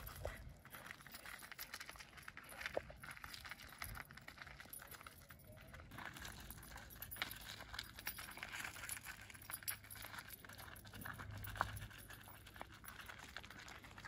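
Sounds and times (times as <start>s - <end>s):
footsteps on gravel: 0.0s - 3.7s
dog boots clicking on gravel: 0.0s - 14.0s.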